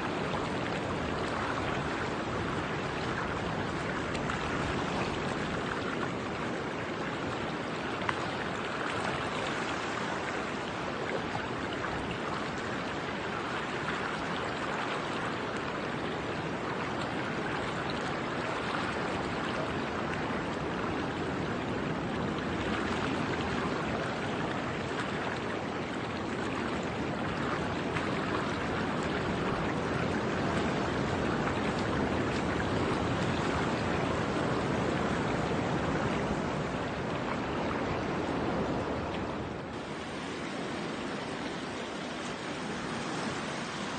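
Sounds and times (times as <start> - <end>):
surf breaking on rocks: 39.6 - 43.9.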